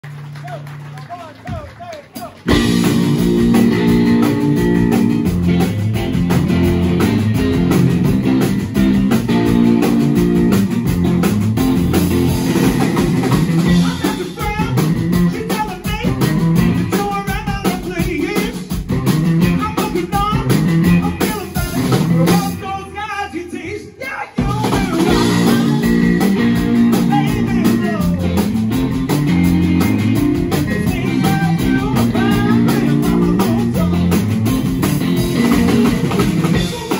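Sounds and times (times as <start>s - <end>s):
drum kit: 0.0s - 23.1s, 24.2s - 36.9s
electric guitars: 2.4s - 23.0s, 24.4s - 36.9s
man singing: 13.6s - 18.8s, 19.4s - 28.4s, 30.4s - 34.3s, 36.5s - 36.9s.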